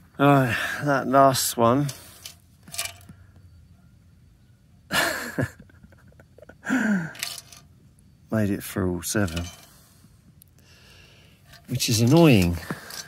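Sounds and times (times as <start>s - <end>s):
man sighing: 6.6s - 7.2s
tin cans ticking and handling: 7.2s - 7.6s, 9.1s - 9.7s, 11.4s - 13.0s.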